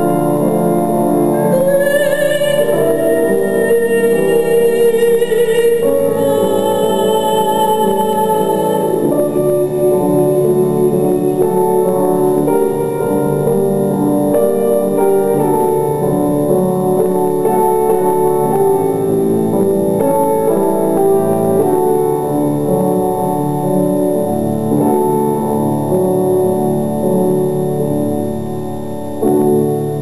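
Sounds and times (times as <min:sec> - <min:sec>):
grand piano classical music: 0:00.0 - 0:30.0.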